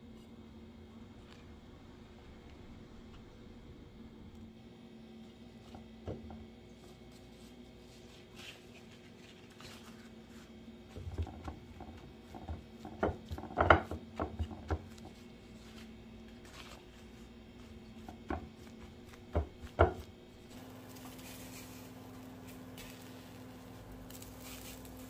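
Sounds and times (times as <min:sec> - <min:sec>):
faint steady hum: 0:00.0 - 0:25.0
hands patting paper towel: 0:11.3 - 0:25.0.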